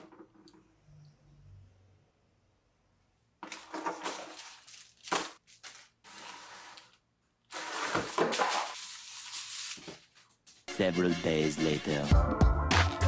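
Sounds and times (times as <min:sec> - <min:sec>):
plastic bags crinkling: 0:03.4 - 0:09.8.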